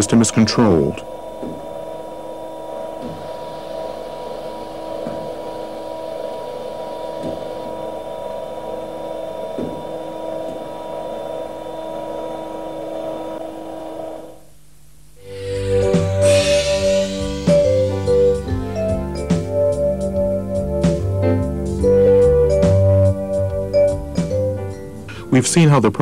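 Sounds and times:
hydraulic pump humming: 0.0 - 14.4, 15.2 - 21.2.

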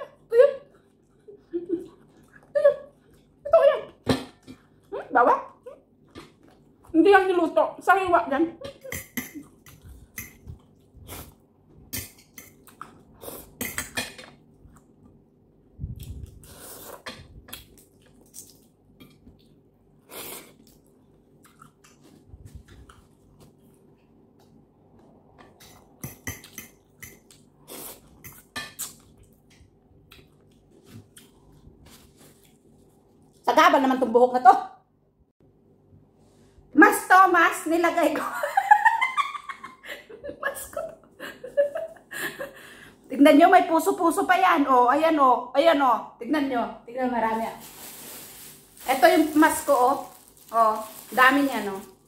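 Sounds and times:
chewing sounds: 20.5 - 23.8.

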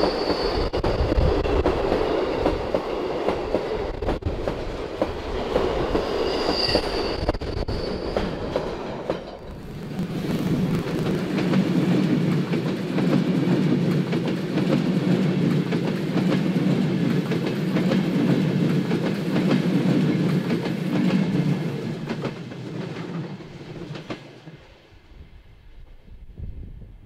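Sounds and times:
train wheels rumbling on rail: 0.0 - 24.9
rapid irregular rail clicks: 10.9 - 24.5.

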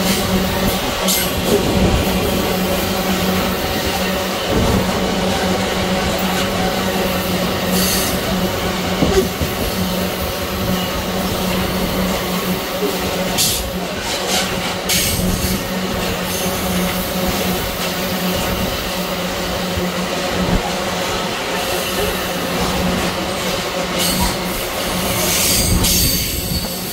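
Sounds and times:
freight train wagons rumbling: 0.0 - 26.9
wheel squeals: 24.0 - 26.9.

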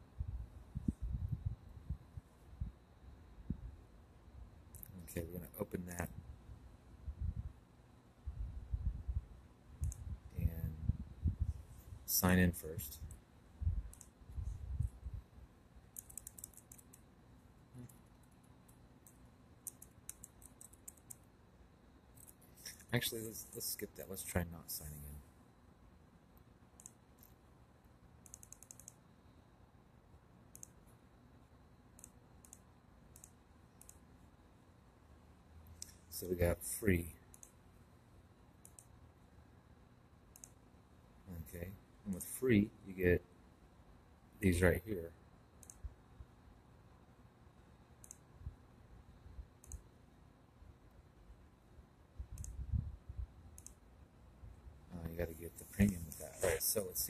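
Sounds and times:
computer mouse clicks: 9.8 - 10.1, 13.9 - 14.2, 15.9 - 17.1, 17.8 - 21.3, 26.4 - 27.4, 28.2 - 29.0, 30.5 - 31.0, 31.9 - 34.0, 37.3 - 37.6, 38.6 - 39.0, 40.3 - 40.6, 45.6 - 45.9, 48.0 - 48.3, 49.6 - 49.9, 52.3 - 52.6, 53.5 - 53.8
mouse button clicking: 28.2 - 29.0.

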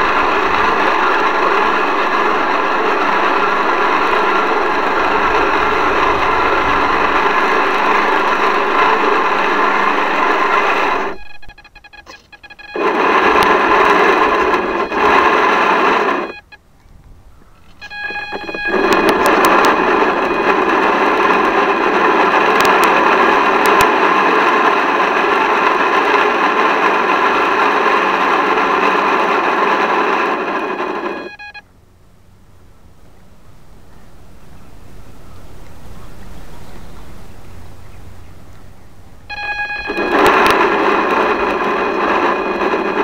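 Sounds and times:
small electric motor whining: 0.0 - 16.5, 17.6 - 31.6, 39.3 - 43.0.

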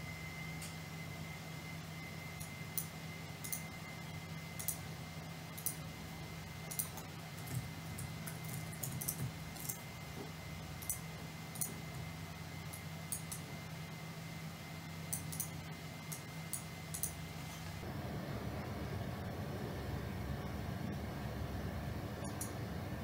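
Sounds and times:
low electrical hum: 0.0 - 23.0.

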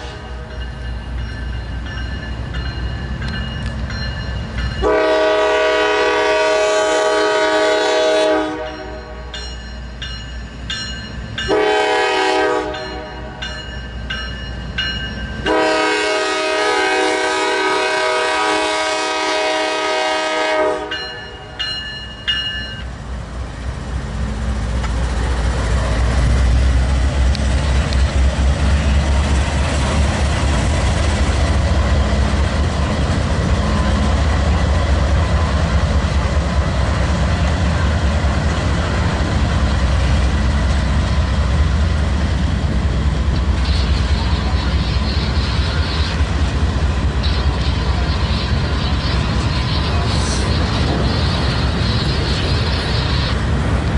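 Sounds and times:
locomotive air horn blasts: 0.0 - 0.5, 4.8 - 9.3, 11.5 - 13.4, 15.4 - 21.1
crossing bell dinging: 0.0 - 5.4, 8.6 - 15.9, 20.7 - 23.0
freight train rumbling past: 0.0 - 53.9.

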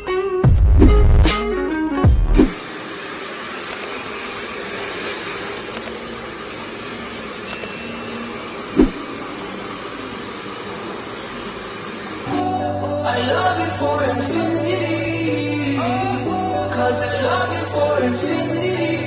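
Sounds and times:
hair dryer blowing: 2.4 - 14.7.

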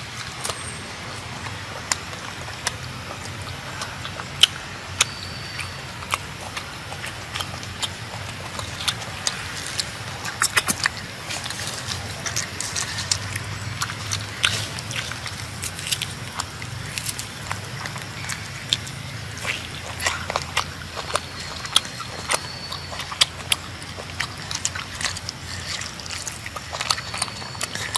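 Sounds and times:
monkey chewing fruit: 0.0 - 27.9.

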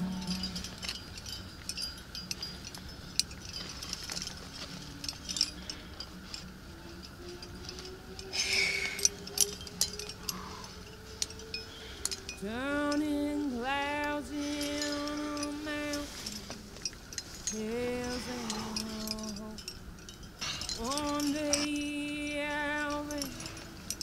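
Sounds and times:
music with sung note: 0.0 - 1.4
climbing gear clinking: 0.0 - 24.0
rustle: 0.0 - 24.0.

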